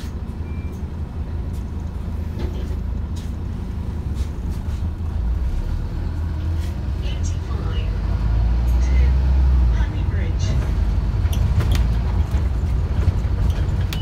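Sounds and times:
bus engine rumbling: 0.0s - 14.0s
road noise: 0.0s - 14.0s
interior rattles: 10.4s - 14.0s.

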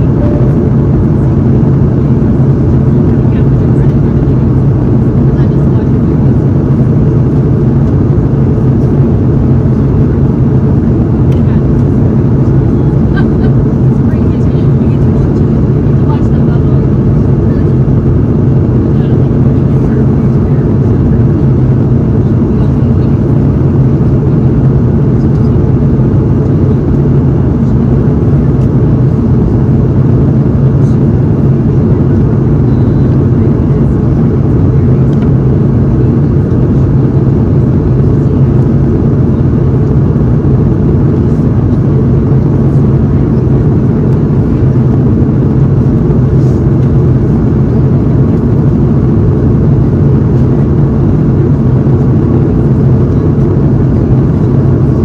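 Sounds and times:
airliner cabin engine hum: 0.0s - 55.0s.

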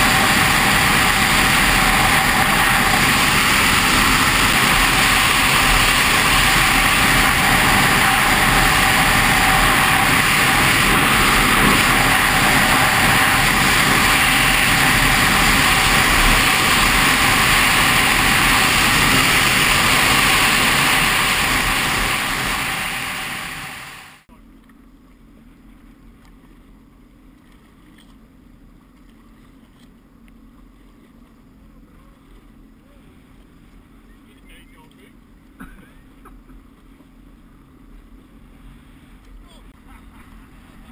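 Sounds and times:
jet ski engine and water rush: 0.0s - 40.9s
quiet water noise: 24.3s - 40.9s.

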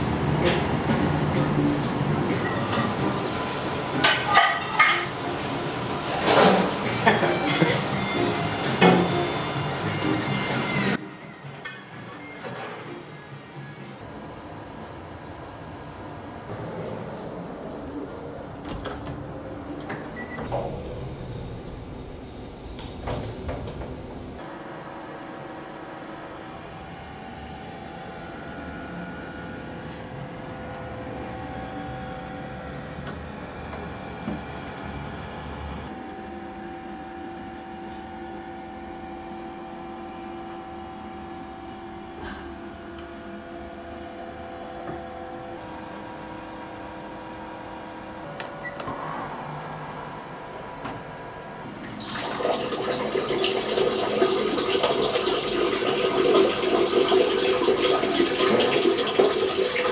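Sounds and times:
water running: 51.7s - 59.9s.

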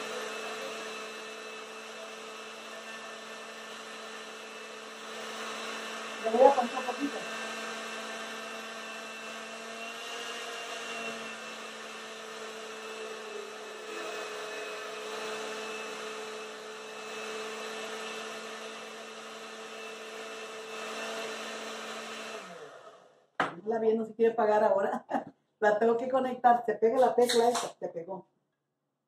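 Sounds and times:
blender motor humming: 0.0s - 23.6s.

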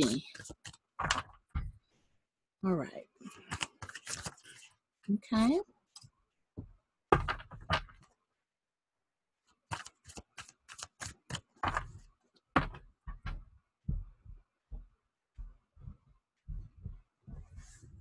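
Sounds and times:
cards being shuffled: 0.0s - 1.4s, 3.2s - 4.8s, 9.5s - 12.8s.

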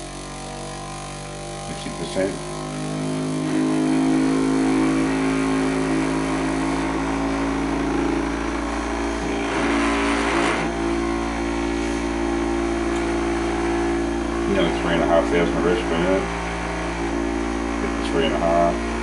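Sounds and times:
small electric motor humming: 0.0s - 19.0s.

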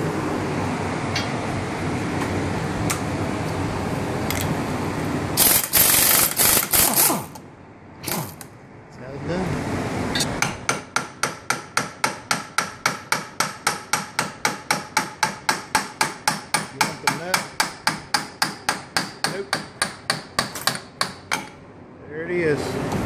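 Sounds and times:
hammer tapping on metal shaft: 10.4s - 21.6s.

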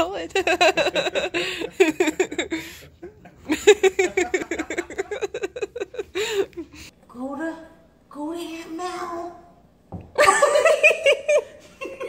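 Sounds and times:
person laughing hard: 0.5s - 2.8s, 3.4s - 6.8s.

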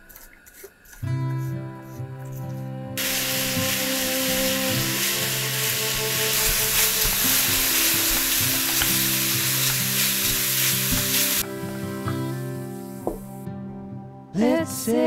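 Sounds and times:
spatula stirring in a pan: 0.0s - 2.5s, 4.9s - 11.4s
apples sizzling in a frying pan: 3.0s - 11.4s.

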